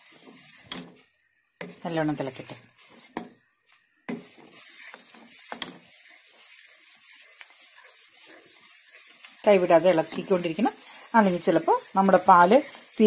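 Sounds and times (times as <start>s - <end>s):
metal spoon scraping saucepan: 1.6s - 3.2s, 4.1s - 13.0s
steady hiss of heating milk: 1.6s - 3.3s, 4.1s - 13.0s.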